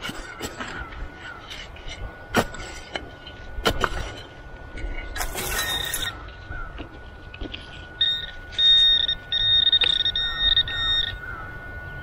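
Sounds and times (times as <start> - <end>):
pinpointer electronic beeps: 7.6 - 12.0.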